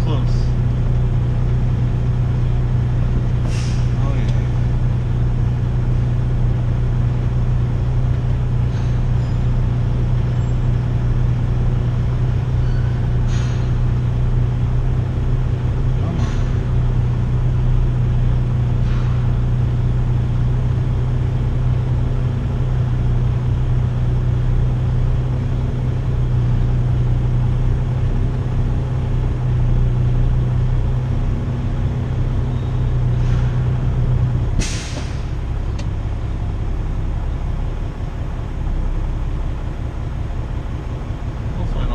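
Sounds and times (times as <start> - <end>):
diesel engine drone: 0.0 - 41.9
air brakes hissing: 3.4 - 4.1, 8.6 - 9.6, 12.7 - 13.9, 33.1 - 33.7, 34.5 - 35.4.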